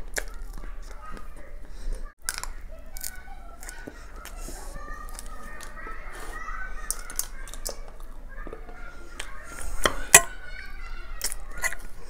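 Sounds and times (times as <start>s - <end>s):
distant children playing: 0.0s - 12.0s
spoon scraping and clicking on plate: 11.2s - 12.0s.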